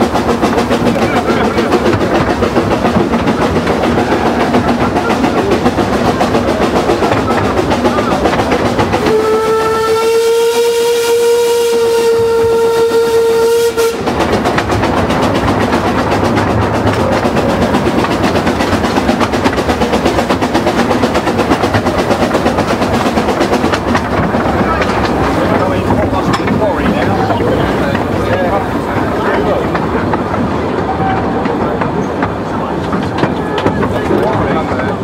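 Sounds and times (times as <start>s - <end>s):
steam locomotive chuffing: 0.0s - 35.0s
steam whistle: 9.0s - 14.1s.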